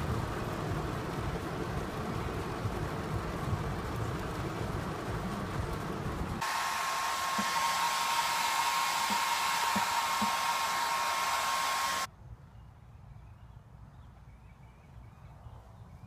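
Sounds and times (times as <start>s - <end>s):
blower-like rushing with whine: 0.0s - 12.1s.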